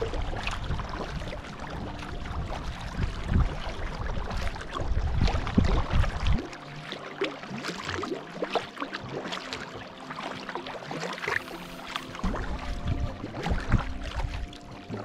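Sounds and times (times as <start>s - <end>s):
paddle splashing water: 0.0s - 15.0s.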